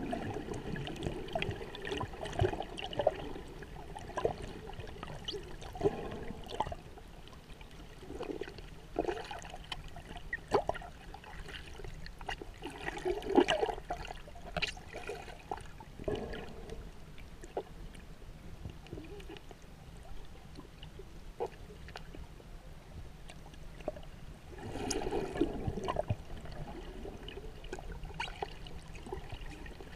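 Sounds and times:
underwater sloshing and bubbling: 0.0 - 29.9.

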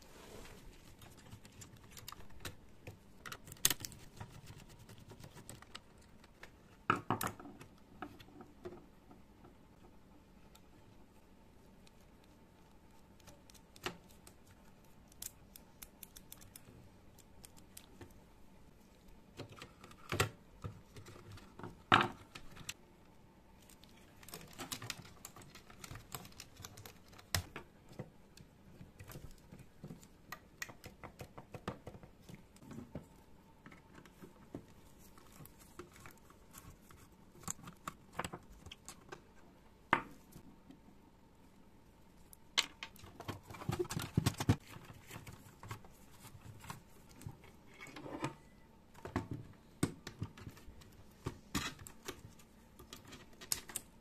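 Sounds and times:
plastic parts clicking and rattling: 23.6 - 32.0.

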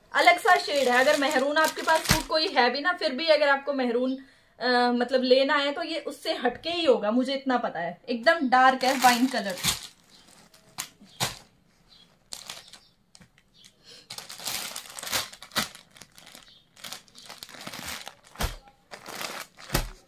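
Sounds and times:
plastic bag crinkling: 0.2 - 2.6, 8.7 - 20.0.

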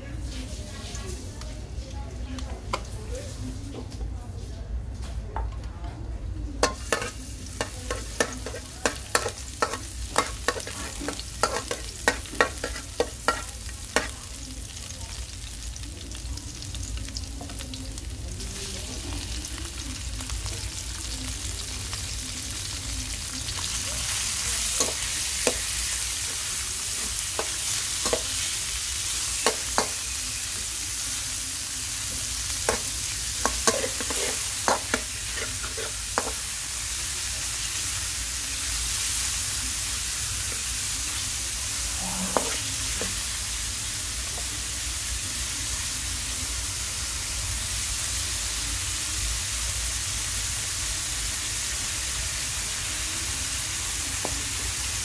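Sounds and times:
food sizzling in oil: 0.1 - 2.0, 6.6 - 55.0
spatula scraping and tapping wok: 6.6 - 14.2, 23.6 - 30.7, 32.2 - 36.7, 41.8 - 43.5.

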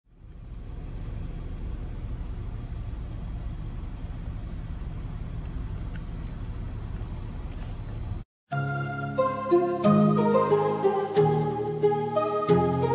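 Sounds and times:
low outdoor rumble: 0.1 - 8.2.

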